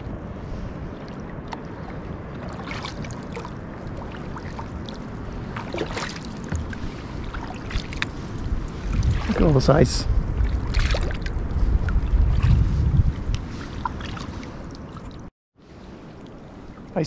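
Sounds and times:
paddle strokes splashing: 0.0s - 15.3s
water washing: 0.8s - 12.7s.

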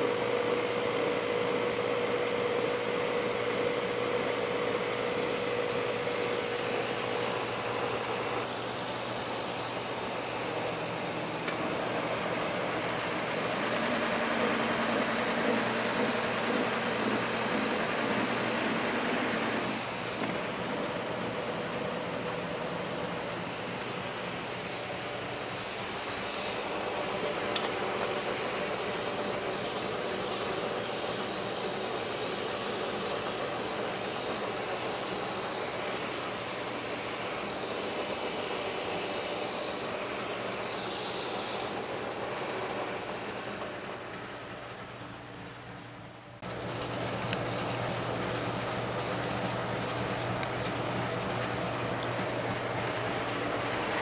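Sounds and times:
milling cutter hissing through plastic: 0.0s - 41.8s
motor and gearing hum: 0.0s - 54.0s.

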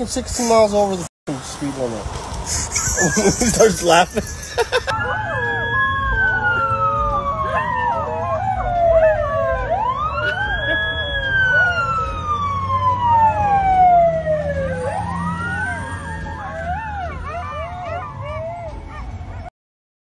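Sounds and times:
emergency siren wailing: 4.7s - 19.5s
dogs howling: 4.9s - 14.2s, 15.0s - 19.5s.

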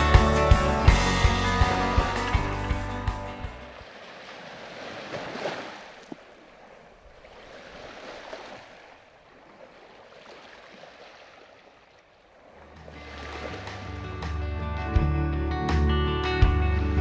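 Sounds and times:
music: 0.0s - 3.7s, 12.6s - 17.0s
rushing water: 0.0s - 14.4s.

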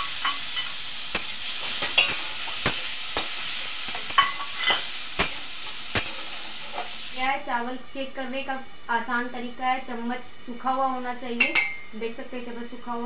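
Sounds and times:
onions sizzling in hot oil: 0.0s - 13.0s
spatula scraping metal pan: 3.9s - 7.0s.

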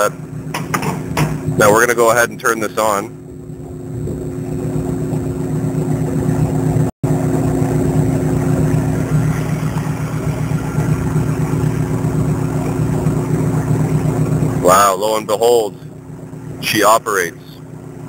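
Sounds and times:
refrigeration compressor and fan hum: 0.0s - 18.0s.

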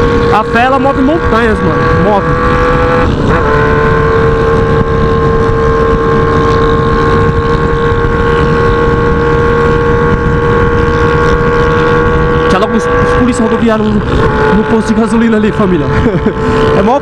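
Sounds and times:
motorcycle engine cruising: 0.0s - 17.0s.

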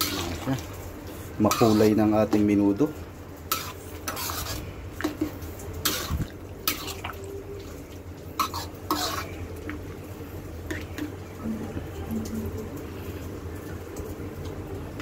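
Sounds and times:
metal spoon scraping a wok: 1.4s - 2.0s, 3.5s - 5.2s, 5.8s - 7.0s, 8.4s - 9.4s
low hum: 11.3s - 15.0s.

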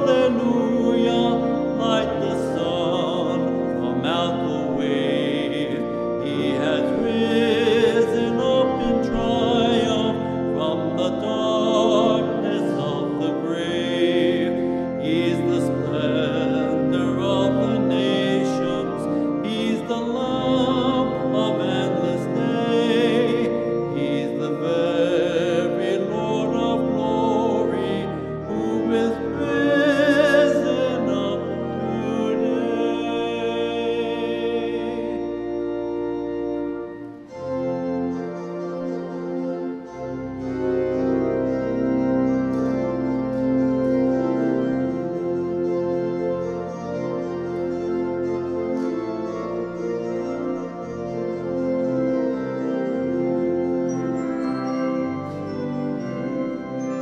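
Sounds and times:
hymn sung with vibrato: 0.0s - 36.2s
sustained instrumental accompaniment: 0.0s - 57.0s.

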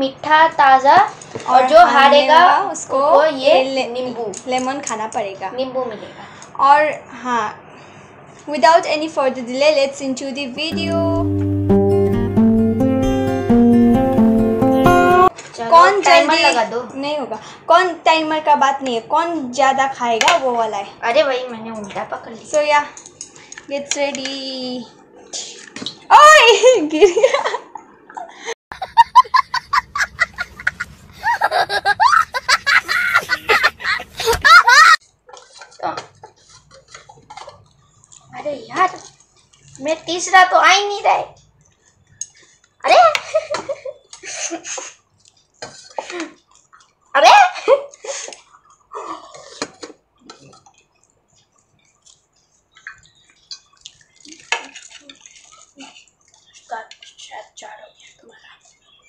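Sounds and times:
boy laughing: 28.7s - 35.0s
wet eating noises: 35.0s - 40.3s, 44.0s - 57.3s.

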